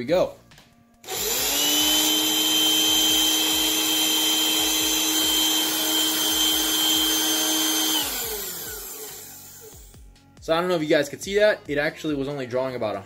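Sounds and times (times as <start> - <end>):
handheld vacuum cleaner whine: 1.0 - 10.0.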